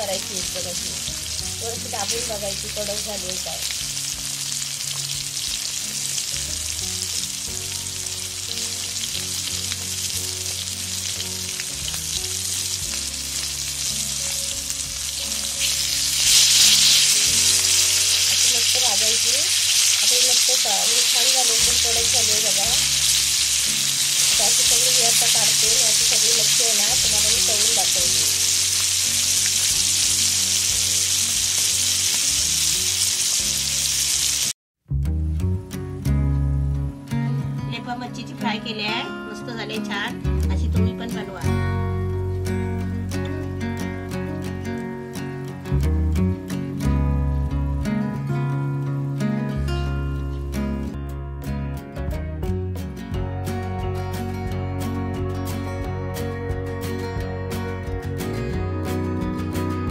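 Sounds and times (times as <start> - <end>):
fish fillets sizzling in oil: 0.0 - 34.6.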